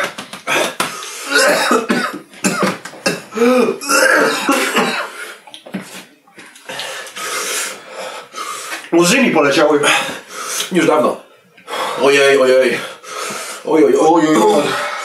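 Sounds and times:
men coughing: 0.5s - 5.2s, 14.2s - 14.9s
pained groans: 3.3s - 4.5s.

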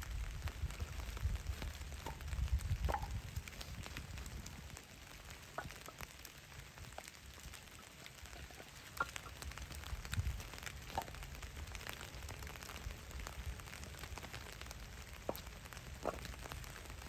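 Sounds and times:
campfire crackling: 0.0s - 17.0s.

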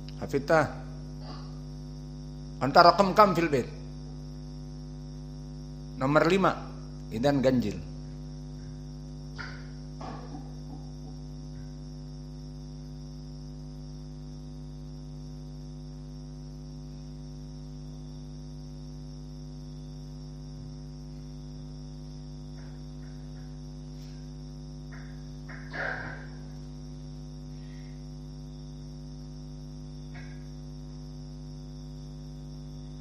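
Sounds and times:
crickets chirring: 0.0s - 33.0s
electrical mains hum: 0.0s - 33.0s.

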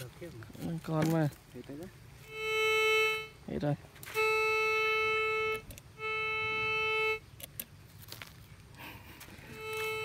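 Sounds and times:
metal detector buzzy tone: 2.2s - 7.6s, 9.4s - 10.0s
sharp clicks: 7.2s - 7.8s.

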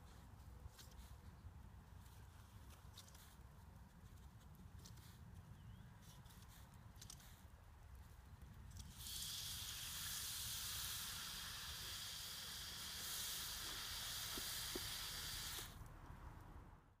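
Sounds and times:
hose spray nozzle hissing: 8.8s - 15.8s.

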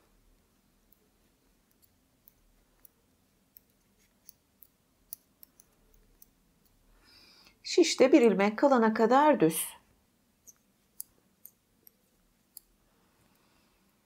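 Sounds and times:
knitting needles clicking: 0.7s - 6.8s, 10.4s - 13.6s.

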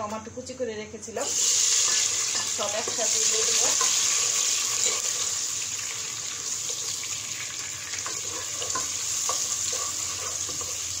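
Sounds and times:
vegetables sizzling in oil: 1.1s - 11.0s.

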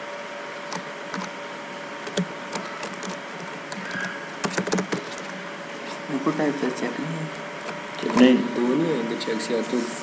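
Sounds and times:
faint steady hum: 0.0s - 10.0s
keyboard keystroke clicks: 2.0s - 5.0s.

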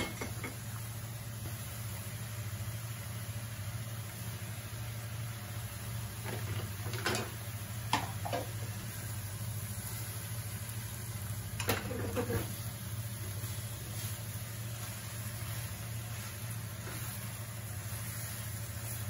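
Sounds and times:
spatula scraping cooking pot: 11.7s - 12.6s.

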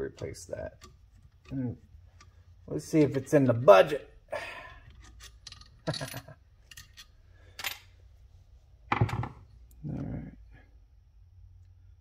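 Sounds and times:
small metal parts clinking: 4.9s - 7.9s.

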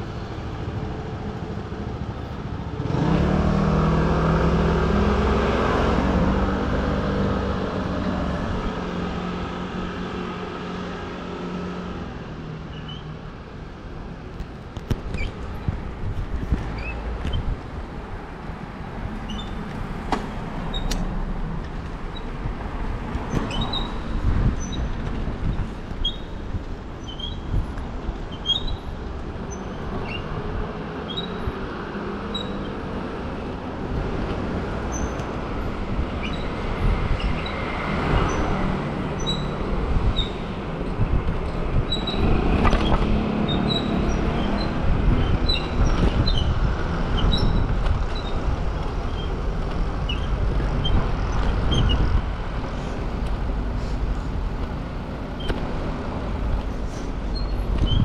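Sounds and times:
road and wind rumble: 0.0s - 58.0s
traffic going by: 0.0s - 58.0s
high squeaks: 23.3s - 24.9s, 25.5s - 26.4s, 27.0s - 27.6s, 28.3s - 28.9s, 32.2s - 32.8s, 37.2s - 40.4s, 41.8s - 46.6s.

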